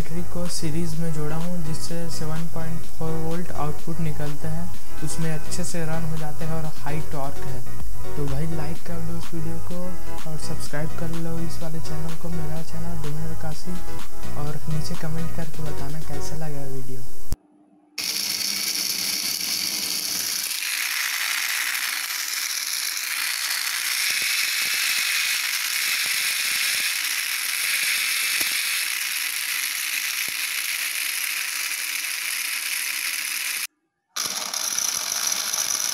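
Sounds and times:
small motor and gearbox whirring: 0:18.0 - 0:35.9.

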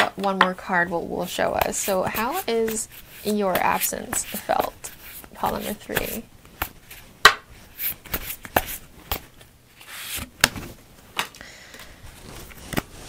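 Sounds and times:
cards being shuffled: 0:01.5 - 0:10.7, 0:12.1 - 0:13.0.

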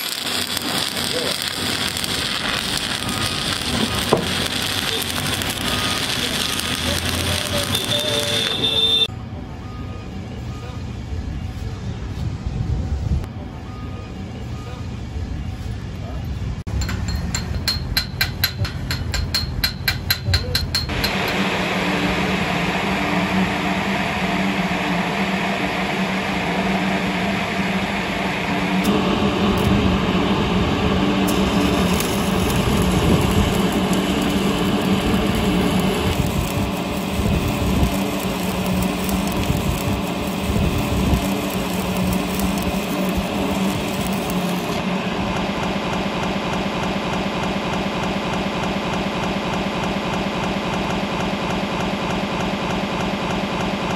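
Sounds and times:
welding arc sizzling: 0:00.0 - 0:09.1, 0:16.7 - 0:53.9
hammer tapping on steel pipe: 0:16.8 - 0:21.3.

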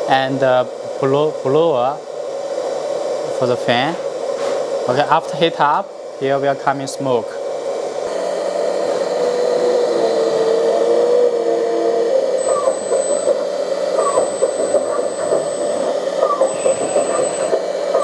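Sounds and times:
blower fan whirring: 0:00.0 - 0:18.0
wavering tone: 0:08.1 - 0:18.0.

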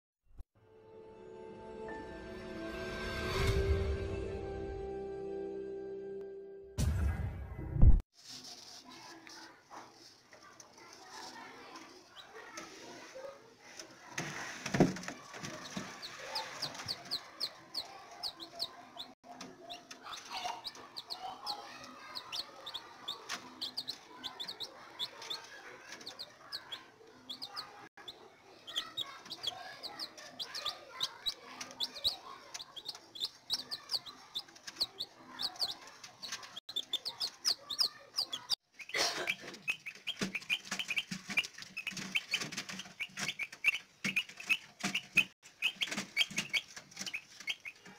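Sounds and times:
chicks peeping: 0:14.7 - 0:47.9.

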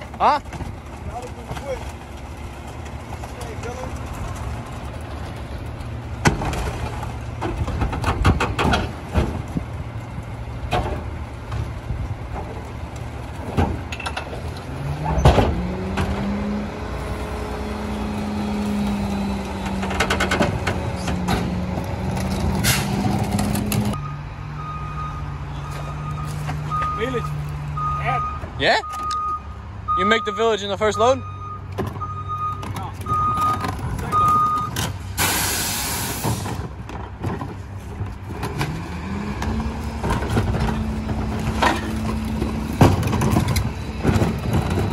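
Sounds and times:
recyclables clattering: 0:00.0 - 0:14.6, 0:39.4 - 0:44.9
garbage truck engine humming: 0:00.0 - 0:44.9
reversing alarm beeping: 0:24.0 - 0:34.8.

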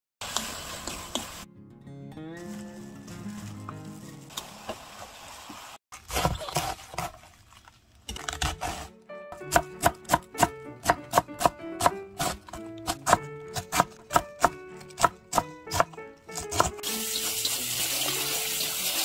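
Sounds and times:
light background music: 0:00.4 - 0:04.3, 0:08.2 - 0:19.0
rustling and handling noises: 0:02.4 - 0:04.4
knife chopping cabbage on board: 0:08.3 - 0:16.8.

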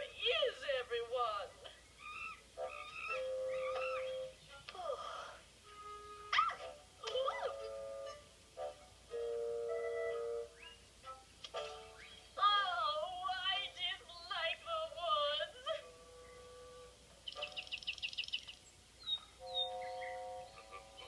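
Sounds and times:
bird chirping trill: 0:01.4 - 0:04.6, 0:09.1 - 0:12.4, 0:16.0 - 0:21.0
short bird calls: 0:01.8 - 0:04.4
sustained music notes: 0:05.6 - 0:12.3, 0:19.4 - 0:21.0
yodel-like vocal melody: 0:12.4 - 0:15.8.

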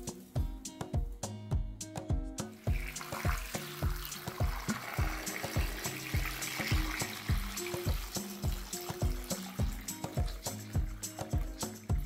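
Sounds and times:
background music with steady beat: 0:00.0 - 0:12.0
water pouring into a pot: 0:02.6 - 0:12.0.

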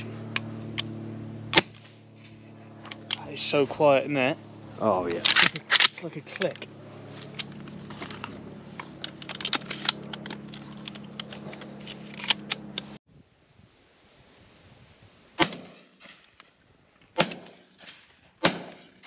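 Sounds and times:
low hum: 0:00.0 - 0:13.4
shotgun shots with echo: 0:15.4 - 0:15.9, 0:17.2 - 0:17.6, 0:18.4 - 0:19.0.

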